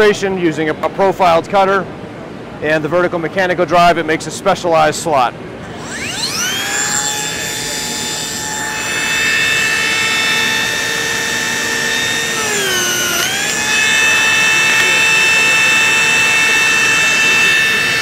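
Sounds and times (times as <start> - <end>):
joiner motor whining: 5.6 - 18.0.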